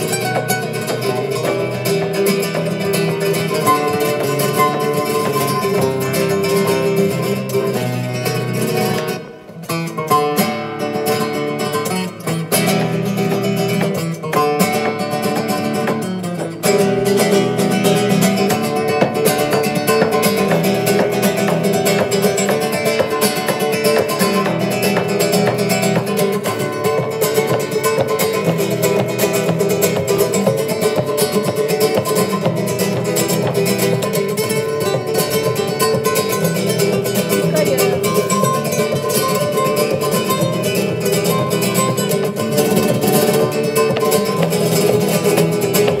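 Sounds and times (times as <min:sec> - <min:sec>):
flamenco guitar: 0:00.0 - 0:46.0.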